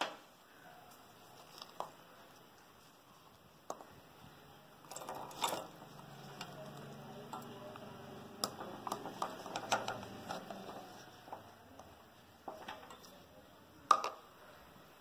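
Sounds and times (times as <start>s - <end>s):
coconut pieces clicking in metal jar: 4.8s - 5.8s, 8.4s - 10.8s.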